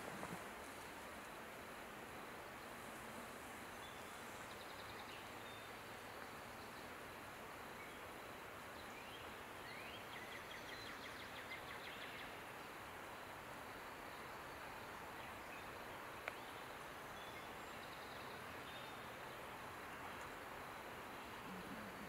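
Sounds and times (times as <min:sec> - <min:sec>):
distant bird calls: 0:00.0 - 0:00.8
outdoor background noise: 0:00.0 - 0:22.0.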